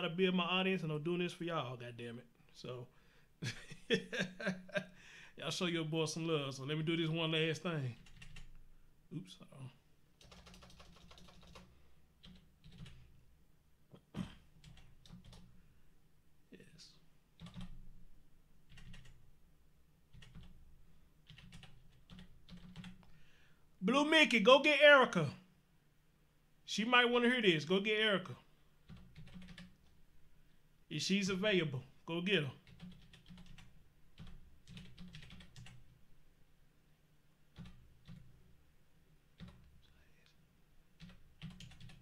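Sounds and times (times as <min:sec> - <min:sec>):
faint keyboard typing: 0:06.9 - 0:08.8, 0:10.2 - 0:13.3, 0:14.6 - 0:15.6, 0:17.4 - 0:18.0, 0:18.6 - 0:19.3, 0:20.1 - 0:23.2, 0:28.8 - 0:30.0, 0:32.6 - 0:36.0, 0:37.5 - 0:38.6, 0:39.3 - 0:40.4, 0:41.0 - 0:42.0.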